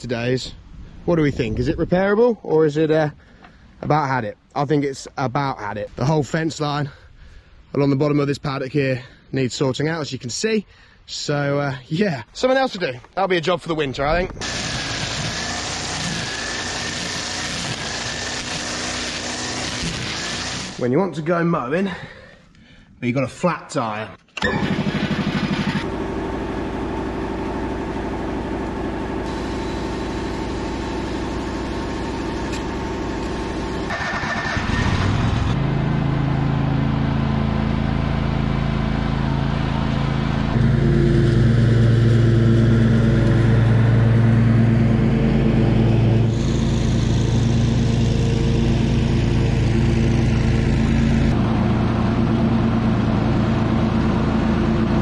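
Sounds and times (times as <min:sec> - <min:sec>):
air compressor motor humming: 0:14.4 - 0:20.8, 0:24.4 - 0:35.6, 0:37.6 - 0:55.0
ride-on mower engine running: 0:14.4 - 0:20.8, 0:24.4 - 0:55.0.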